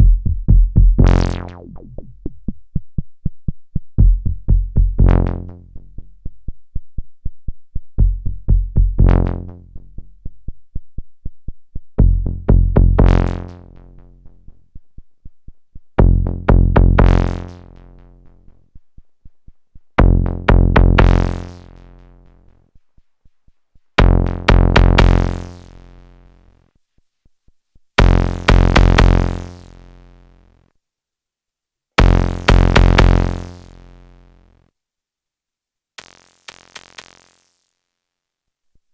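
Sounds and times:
modular synthesizer phrase: 1.4 - 2.3.

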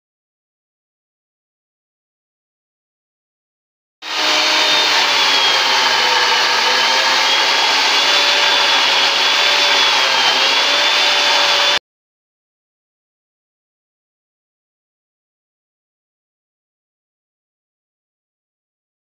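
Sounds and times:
wall saw cutting brick: 4.0 - 11.8.

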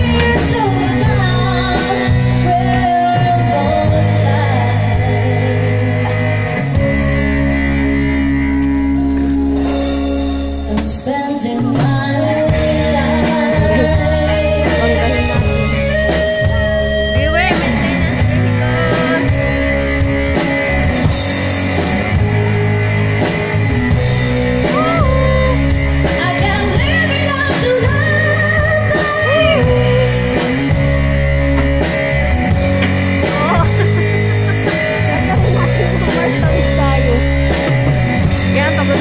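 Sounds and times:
person singing: 0.0 - 7.0, 10.6 - 19.9, 24.5 - 31.0, 32.9 - 37.7
rock song with guitar: 0.0 - 39.0.

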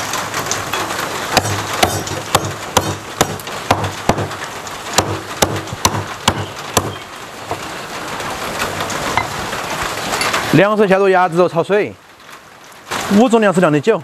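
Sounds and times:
cleaver chopping on wooden block: 1.4 - 4.4, 5.0 - 7.0.

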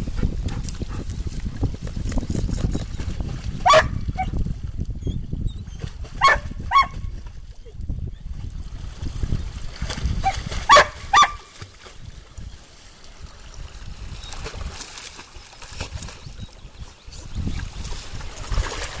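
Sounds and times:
dog barking: 3.6 - 4.0, 6.2 - 7.0, 10.7 - 11.4
dog splashing through water: 13.3 - 16.5, 17.4 - 19.0.

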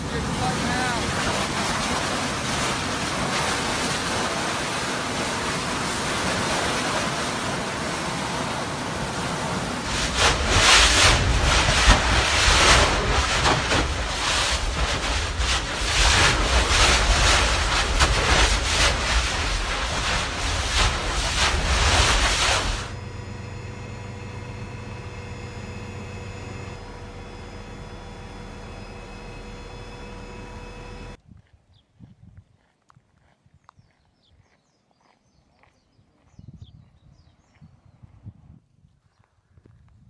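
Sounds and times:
lava spattering bursts: 0.0 - 23.0
lava eruption rumbling: 0.0 - 31.2
steady hiss: 0.0 - 31.2.

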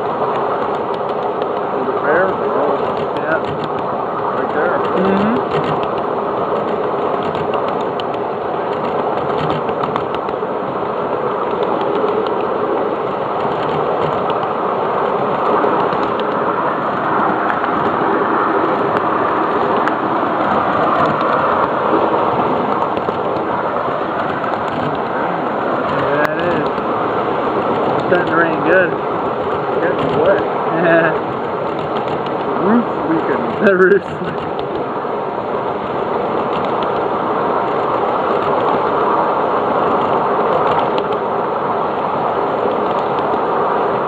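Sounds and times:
train wheels rumbling on rails: 0.0 - 35.1.

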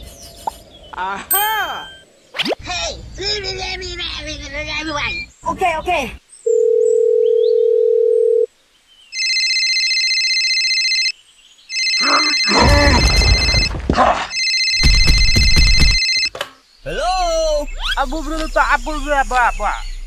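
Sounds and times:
electronic ringing tone: 6.5 - 8.5, 9.2 - 11.1, 11.7 - 13.7, 14.3 - 16.3
steady electronic beep: 14.4 - 16.3
person speaking: 16.8 - 19.9.

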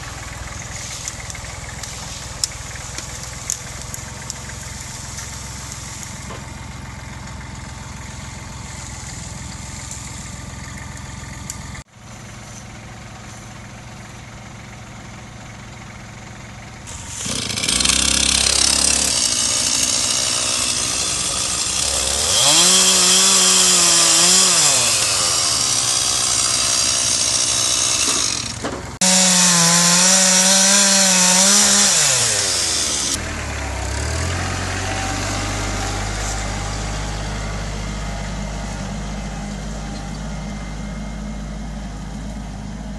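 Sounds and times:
tractor diesel engine running: 0.0 - 42.9
chainsaw cutting tree trunk: 16.9 - 37.3.

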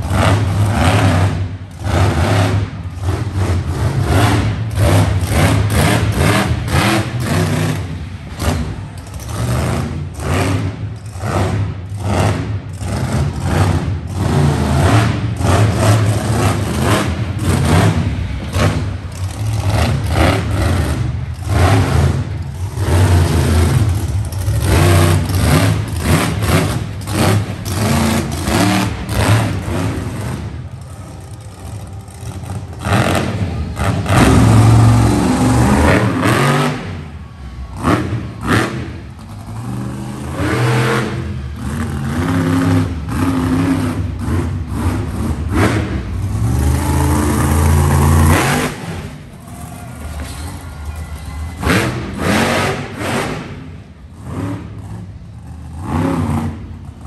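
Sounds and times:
monster truck engines revving: 0.0 - 57.0.

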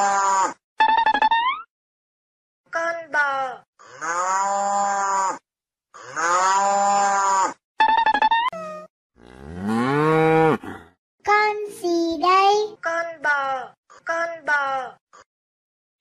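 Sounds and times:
cattle mooing: 9.2 - 10.9.

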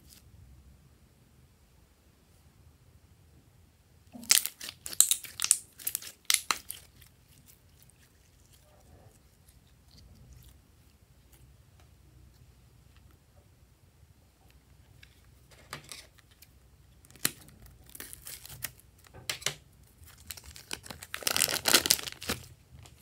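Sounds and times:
slime stretched and pressed: 20.0 - 22.5.

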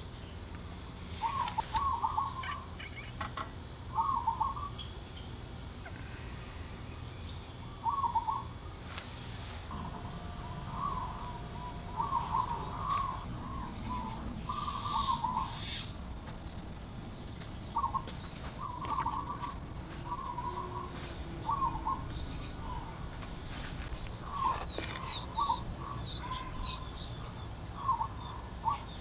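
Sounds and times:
low outdoor rumble: 0.0 - 29.0
bird warbling: 1.2 - 3.2, 10.4 - 16.0, 17.7 - 23.0.

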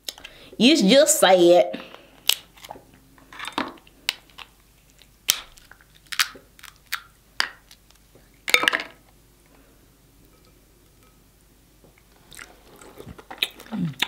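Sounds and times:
crab shells cracking: 2.2 - 2.8, 3.4 - 8.0.

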